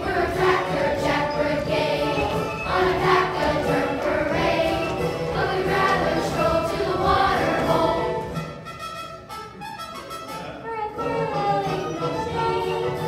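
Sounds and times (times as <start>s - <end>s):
children's chorus singing: 0.0s - 8.6s
musical accompaniment: 0.0s - 13.0s.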